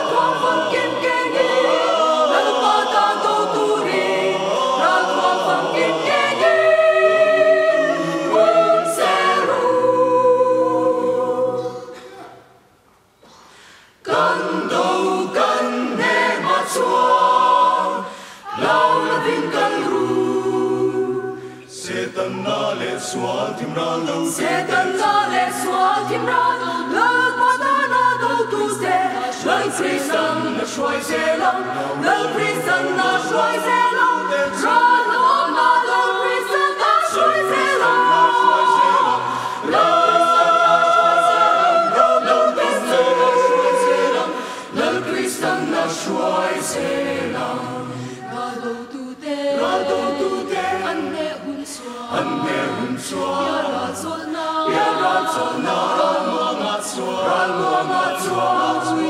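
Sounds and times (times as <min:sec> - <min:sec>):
mixed choir singing: 0:00.0 - 0:12.5, 0:13.9 - 0:59.0.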